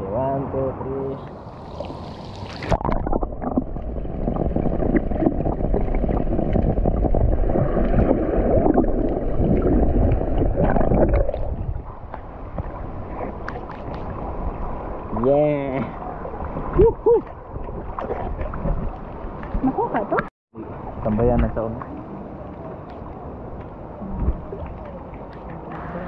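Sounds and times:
churning gurgling water: 1.2 - 26.0
water splash: 1.3 - 15.0, 15.8 - 22.0
low rumble: 2.7 - 19.9.

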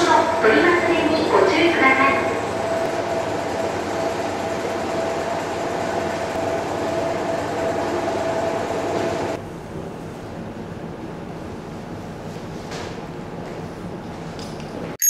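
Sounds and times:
washing machines rumbling: 0.0 - 15.0.

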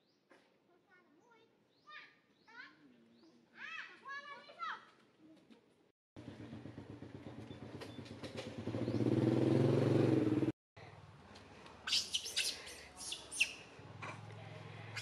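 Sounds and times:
engine humming: 6.2 - 10.5
high sharp animal chirping: 11.9 - 13.7.

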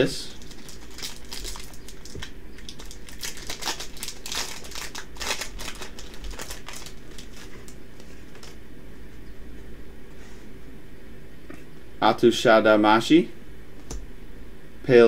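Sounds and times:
foil pack crinkling and tearing: 0.2 - 8.6.

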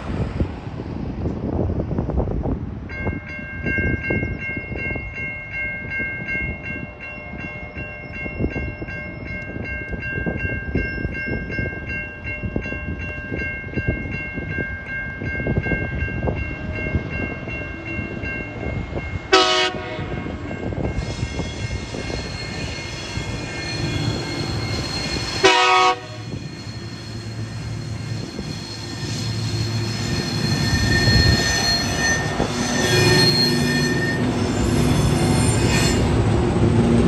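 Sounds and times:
diesel locomotive horn: 19.3 - 20.4, 25.3 - 26.4.

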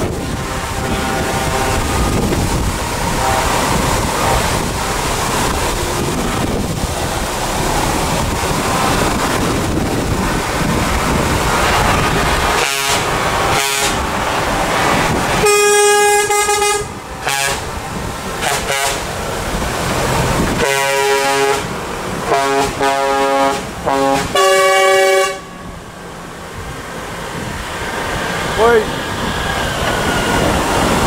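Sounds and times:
heavy trucks driving past: 0.0 - 31.0
truck air horn: 0.1 - 2.2, 3.2 - 4.5, 12.6 - 14.0, 15.4 - 17.7, 18.4 - 19.1, 20.6 - 21.7, 22.3 - 25.7.

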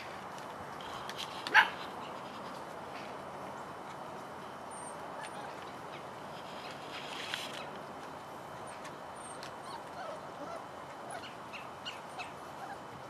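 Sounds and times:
outdoor background noise: 0.0 - 13.0
faint puppy noises: 4.7 - 7.7, 8.6 - 13.0
puppy yipping: 9.2 - 12.8.

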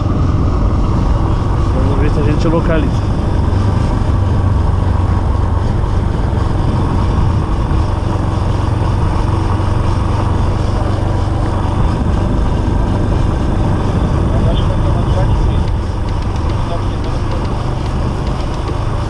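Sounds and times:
motorcycle engine running: 0.0 - 19.0
wind and road noise: 0.0 - 19.0.

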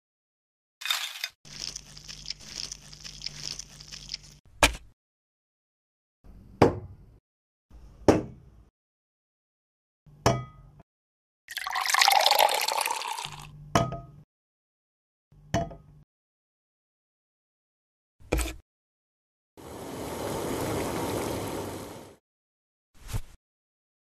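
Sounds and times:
plastic toys stirred through rice: 0.8 - 4.4.

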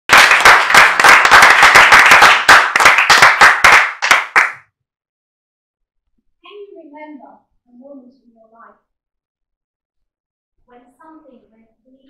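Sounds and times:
audience applauding: 0.0 - 4.6.

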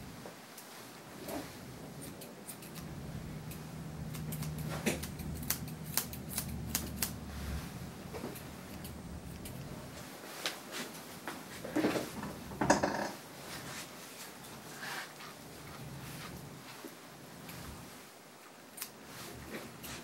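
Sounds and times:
low steady hum: 0.0 - 20.0
shears snipping: 2.0 - 7.3, 8.2 - 9.7, 18.7 - 19.0.

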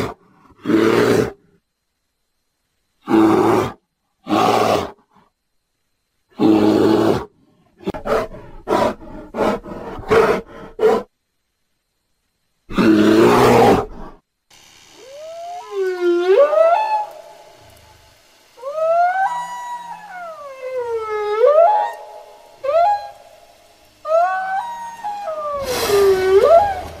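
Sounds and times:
bear roaring: 12.7 - 14.2, 24.0 - 27.0
whale song moans: 18.6 - 23.2, 24.0 - 27.0.

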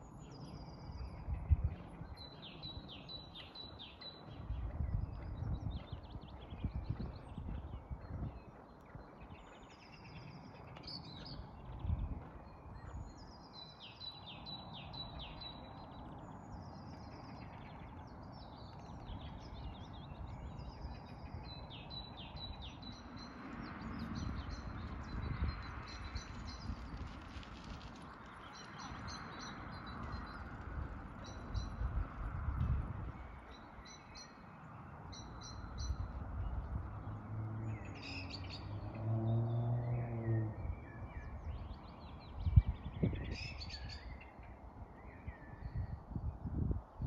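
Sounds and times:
songbird singing: 0.0 - 47.0.

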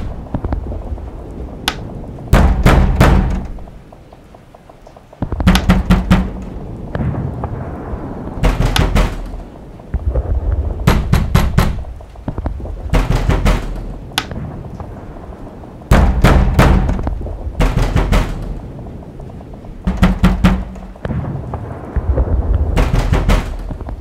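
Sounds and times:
deep booming thuds: 0.0 - 24.0
quiet rumbling: 0.0 - 24.0
sharp rapid knocks: 5.2 - 6.5, 12.9 - 14.4, 19.9 - 21.0, 22.8 - 23.8.

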